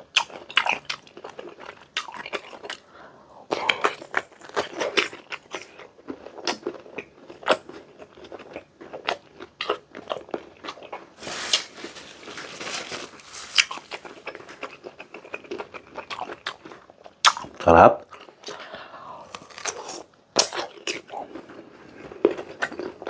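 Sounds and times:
crisp crunching of mango: 3.7s - 18.6s, 19.2s - 23.0s
wet chewing: 13.4s - 18.6s.

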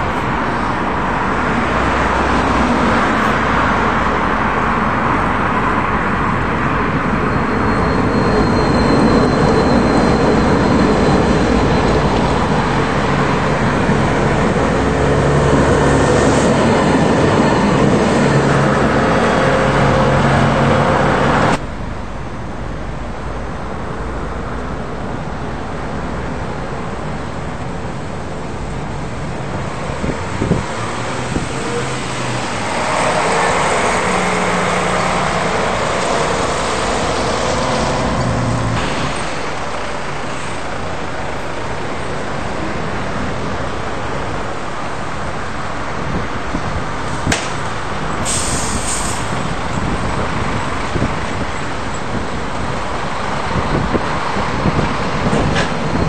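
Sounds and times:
cars passing: 0.0s - 56.0s
tram on rails: 0.0s - 56.0s
short hiss: 48.2s - 49.3s.

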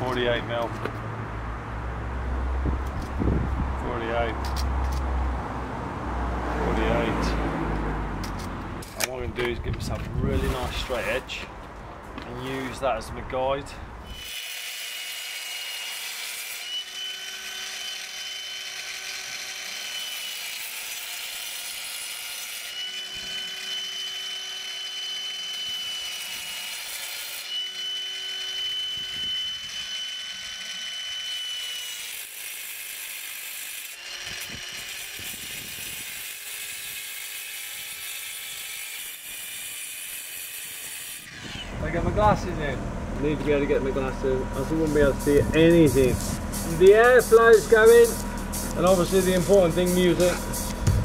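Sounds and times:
multi-tool cutting stone: 10.3s - 11.4s, 14.0s - 41.8s.

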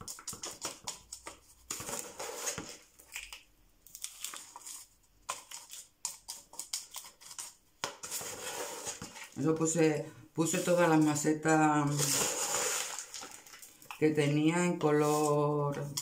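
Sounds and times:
scoop scraping potting mix: 0.0s - 3.4s, 4.1s - 16.0s
potting mix rustling and pattering: 4.2s - 16.0s.

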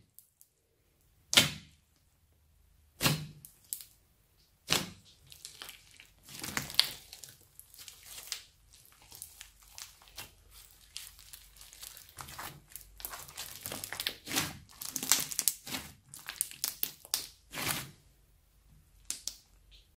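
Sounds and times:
slime crackling and popping: 3.0s - 4.0s, 4.6s - 18.0s, 19.0s - 19.8s.

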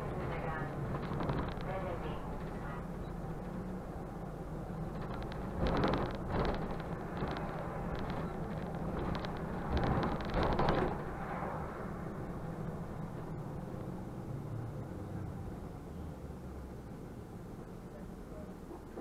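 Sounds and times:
bus engine and road rumble: 0.0s - 19.0s
rattly noise: 0.3s - 3.6s, 4.8s - 11.4s.

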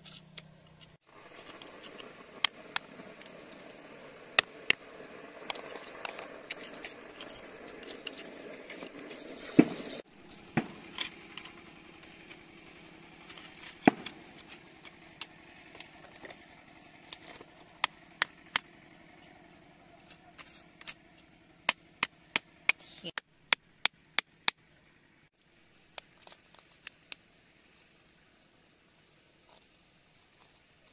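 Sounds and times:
stick prodding stones: 0.0s - 3.8s, 4.4s - 16.4s, 17.0s - 22.8s.

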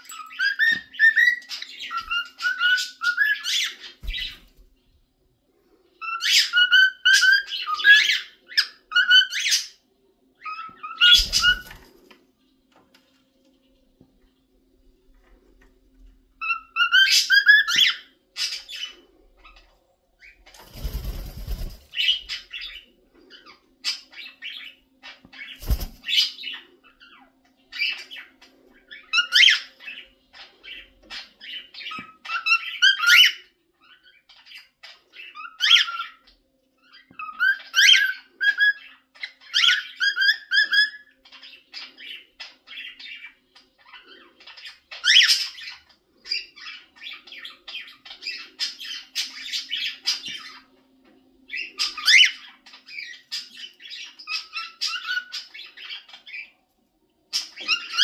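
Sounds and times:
cockatiel whistling and chirping: 0.1s - 4.4s, 6.0s - 9.8s, 10.4s - 11.8s, 16.4s - 18.8s, 31.8s - 33.5s, 36.9s - 41.2s, 54.0s - 56.4s.

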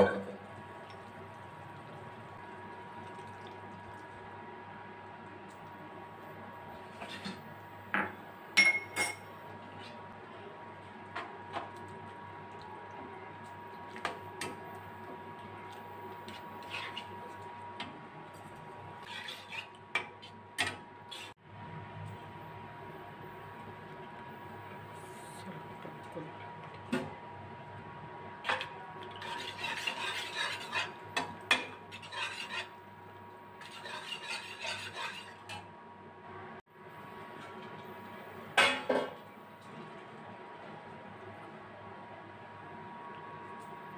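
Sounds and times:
spoon clinking against pan: 8.6s - 9.3s
spatula scraping a metal pan: 16.2s - 17.4s, 19.0s - 20.3s, 29.1s - 32.8s, 33.5s - 35.7s.

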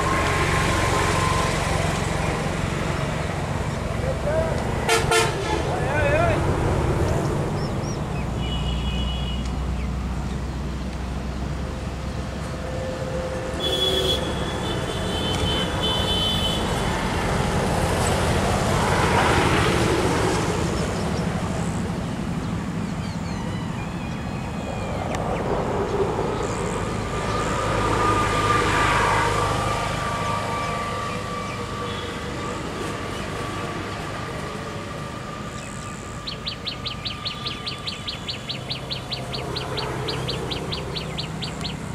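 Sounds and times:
road traffic passing: 0.0s - 41.9s
short high horn toots: 4.9s - 5.7s, 12.9s - 16.7s.

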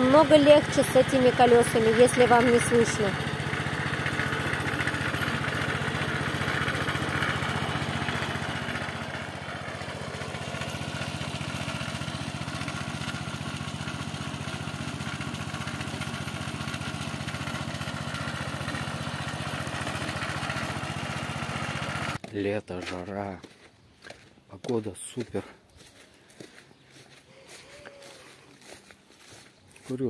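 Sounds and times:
cultivator engine running: 0.0s - 22.3s.

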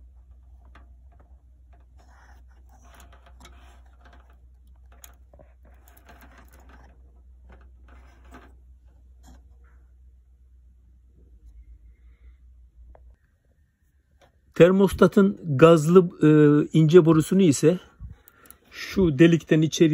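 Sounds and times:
wires rustling: 0.0s - 9.8s, 17.2s - 19.9s.

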